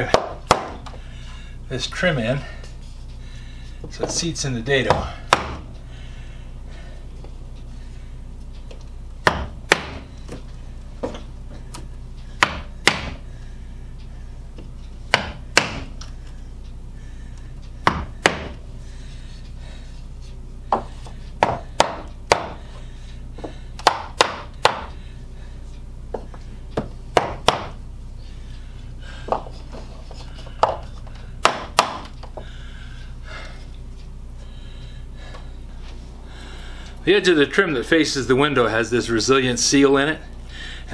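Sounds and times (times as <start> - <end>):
hammer knocking on wooden block: 4.9 - 5.6, 9.2 - 10.0, 12.4 - 13.2, 15.1 - 15.9, 17.8 - 18.6, 20.7 - 22.6, 26.8 - 27.8.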